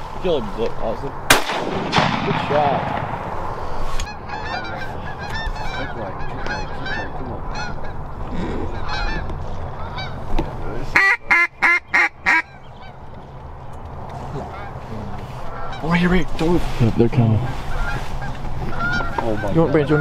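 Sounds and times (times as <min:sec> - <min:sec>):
geese honking: 0:03.5 - 0:13.1, 0:14.3 - 0:16.6, 0:17.2 - 0:20.0.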